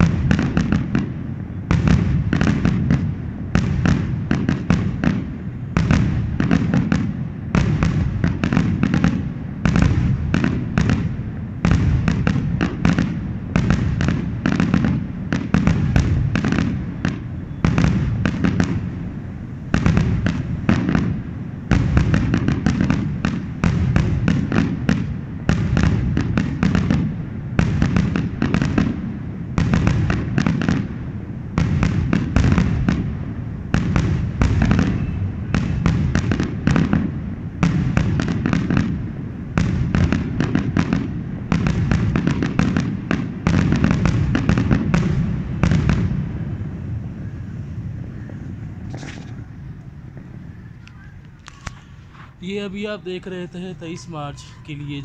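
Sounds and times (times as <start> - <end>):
fireworks bangs and crackles: 0.0 - 55.0.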